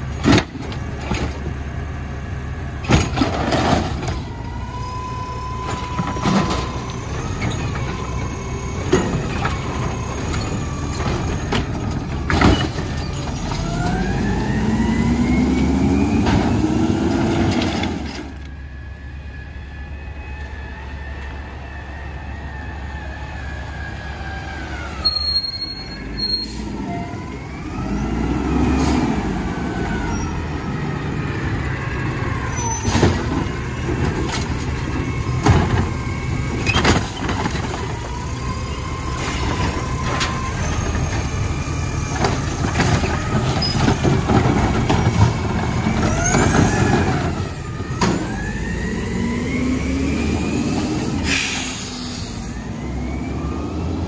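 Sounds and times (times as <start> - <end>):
garbage truck engine and hydraulics: 0.0 - 54.0
air brakes hissing: 25.0 - 26.9, 51.1 - 52.6.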